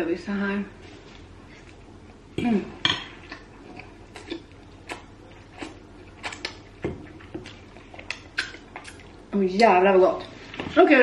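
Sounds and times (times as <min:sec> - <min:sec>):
chewing mouth sounds: 0:03.2 - 0:09.3.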